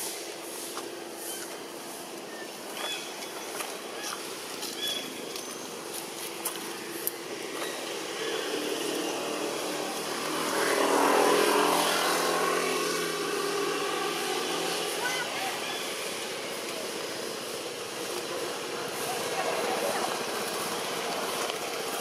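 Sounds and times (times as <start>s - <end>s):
motor engine passing: 6.8s - 22.0s.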